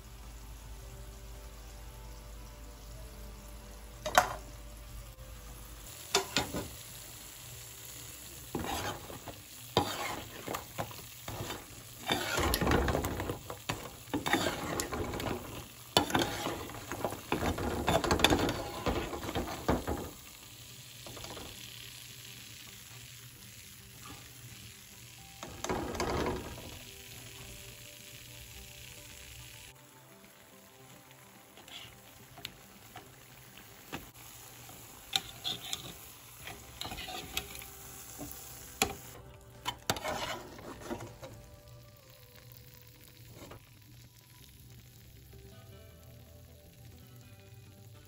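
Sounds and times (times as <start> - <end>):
wet sizzling: 5.8 - 46.0
metal spoon scraping a wok: 8.4 - 20.1, 31.6 - 32.1, 35.1 - 37.7, 39.6 - 41.3.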